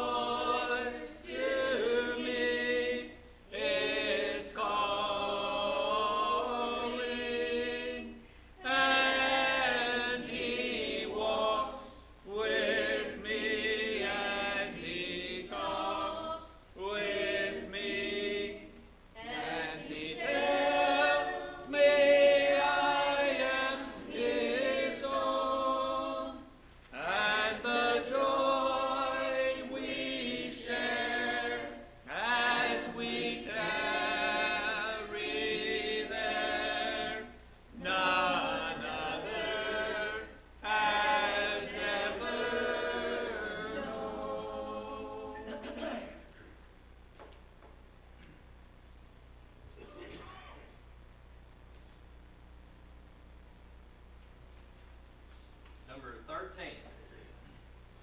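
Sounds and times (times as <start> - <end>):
congregation singing a hymn: 0.0 - 46.4.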